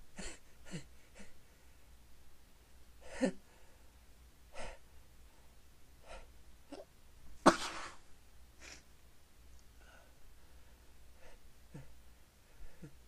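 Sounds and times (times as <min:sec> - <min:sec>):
person sneezing: 0:07.4 - 0:08.0.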